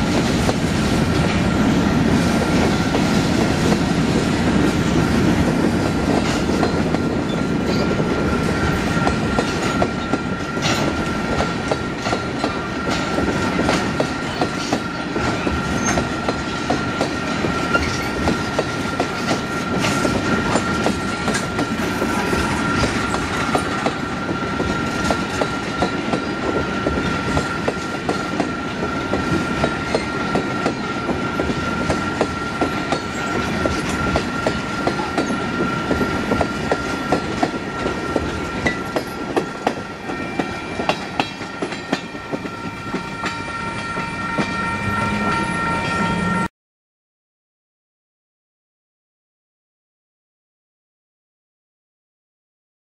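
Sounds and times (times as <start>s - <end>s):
freight train rolling past: 0.0s - 46.5s
high-pitched ring: 38.7s - 46.5s.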